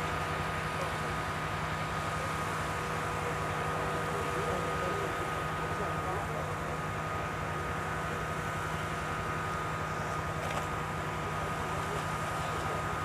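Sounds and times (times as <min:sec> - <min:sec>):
outdoor noise: 0:00.0 - 0:13.0
steady mechanical hum: 0:00.0 - 0:13.0.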